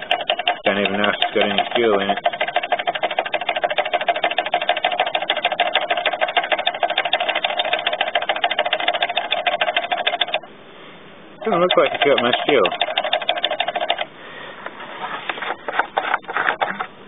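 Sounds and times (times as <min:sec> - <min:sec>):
small engine running: 0:00.0 - 0:10.4, 0:11.4 - 0:14.1.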